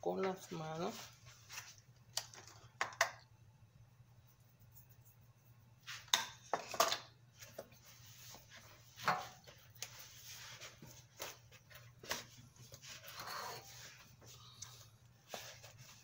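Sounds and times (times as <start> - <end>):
soft rubbing and rustling: 0.1 - 2.0, 7.3 - 16.0.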